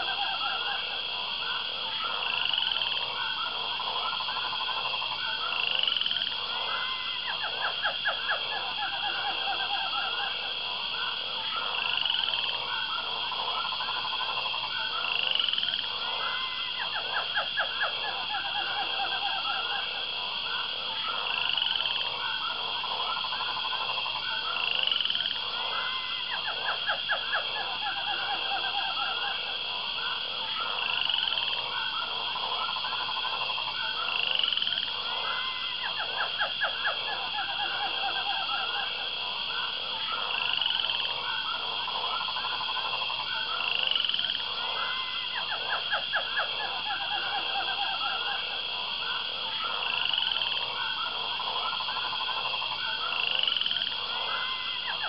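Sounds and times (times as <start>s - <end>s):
high insect trill: 0.0s - 55.0s
rapid pulsed frog calls: 0.0s - 55.0s.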